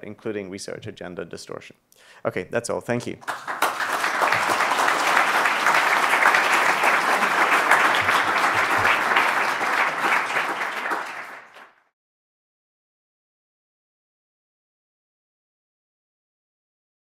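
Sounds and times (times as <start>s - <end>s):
audience applauding: 3.2s - 11.9s.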